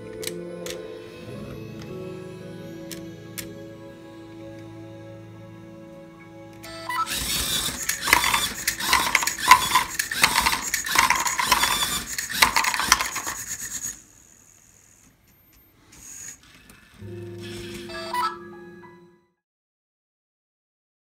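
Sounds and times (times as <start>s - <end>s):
toy robot motors clattering: 7.0s - 15.1s, 15.9s - 17.8s.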